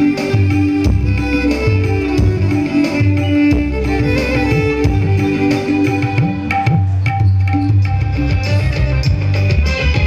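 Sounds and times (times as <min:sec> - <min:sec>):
drums: 0:00.0 - 0:10.0
electric violin melody: 0:00.0 - 0:10.0
deep bass: 0:06.8 - 0:10.0.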